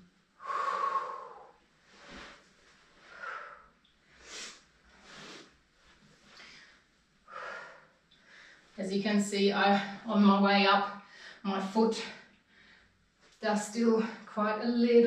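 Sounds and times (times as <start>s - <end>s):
person breathing hard: 0.4s - 2.4s, 6.4s - 8.7s.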